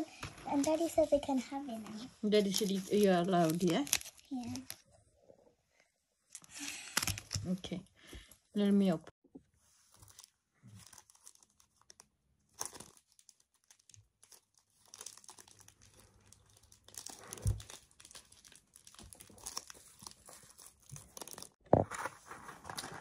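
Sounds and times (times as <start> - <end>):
packaging crinkling and tearing: 2.4 - 4.8, 9.9 - 21.6.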